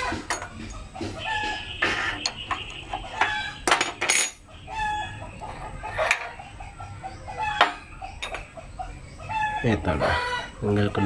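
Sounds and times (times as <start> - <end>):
chickens clucking: 0.0 - 3.6, 4.5 - 11.0
wrench clinking on metal: 0.3 - 0.8, 2.2 - 4.5, 7.6 - 8.5.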